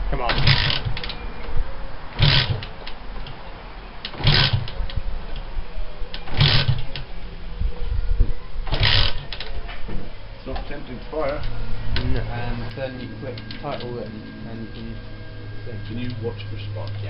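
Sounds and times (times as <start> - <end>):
motorcycle engine kick-start clatter: 0.3 - 1.1, 2.2 - 2.7, 4.1 - 4.8, 6.2 - 7.0, 8.7 - 9.4.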